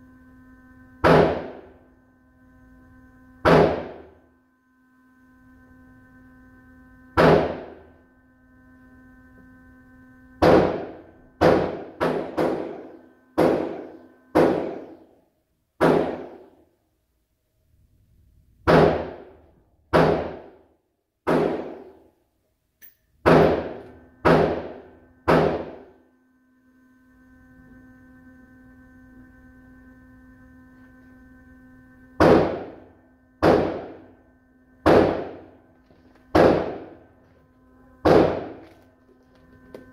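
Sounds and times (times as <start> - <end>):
steady multi-tone hum: 0.0 - 39.9
gunshots echoing indoors: 1.0 - 1.7, 3.4 - 4.2, 7.2 - 7.8, 10.4 - 15.0, 15.8 - 16.6, 18.6 - 20.6, 21.2 - 22.1, 23.2 - 26.0, 32.2 - 32.8, 33.4 - 34.1, 34.8 - 35.5, 36.3 - 37.1, 38.0 - 38.7.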